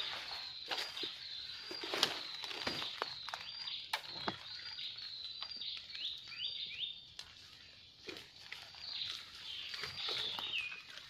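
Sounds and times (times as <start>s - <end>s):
footsteps through undergrowth: 0.0s - 11.0s
twigs cracking and rustling: 0.0s - 11.0s.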